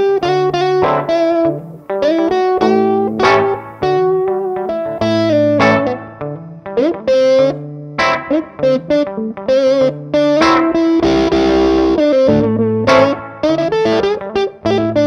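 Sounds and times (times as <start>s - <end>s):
electric guitar music: 0.0s - 15.0s.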